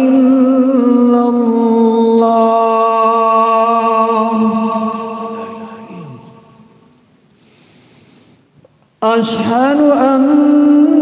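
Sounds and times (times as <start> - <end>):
man chanting call to prayer: 0.0 - 6.7, 9.0 - 11.0.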